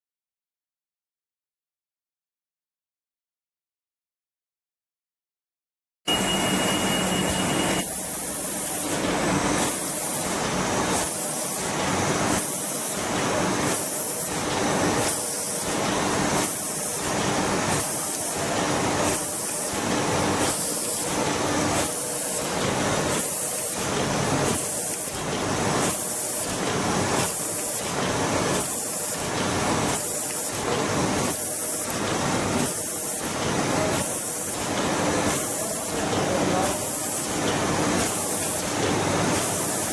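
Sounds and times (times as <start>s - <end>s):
steady high tone: 6.1s - 8.3s
printing machine pulsing hiss: 6.1s - 39.9s.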